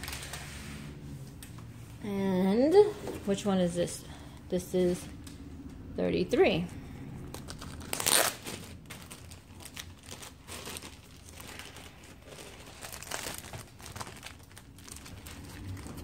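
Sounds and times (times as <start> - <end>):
plastic bag crinkling: 0.0 - 0.6, 7.3 - 16.0.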